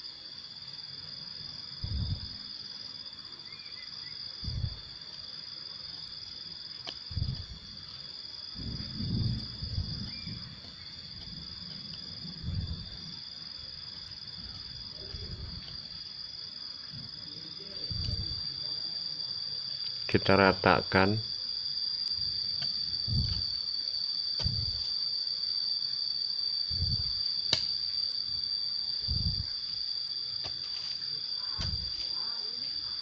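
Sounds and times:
insects buzzing: 0.0 - 33.0.

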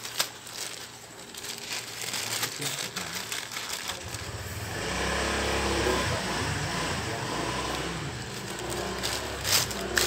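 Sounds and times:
plastic bag crinkling: 0.0 - 4.6, 7.6 - 10.0
low engine rumble: 3.9 - 10.0.

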